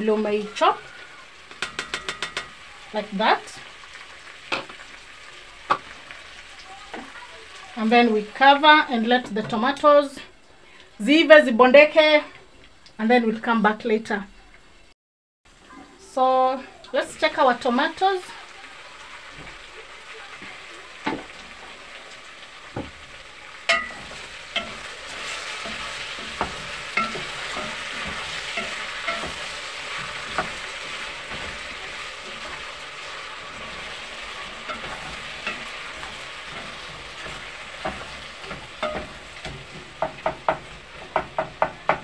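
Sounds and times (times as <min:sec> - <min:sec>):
stew sizzling in a pot: 0:00.0 - 0:42.0
spoon knocking against pot: 0:01.5 - 0:02.5, 0:23.7 - 0:24.8, 0:25.6 - 0:29.5, 0:34.7 - 0:42.0
wooden spoon stirring: 0:23.7 - 0:42.0.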